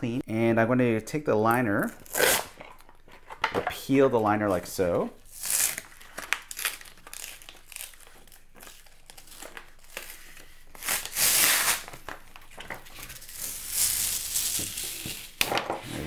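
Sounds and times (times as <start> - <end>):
liner peeling and crinkling: 5.3 - 15.5.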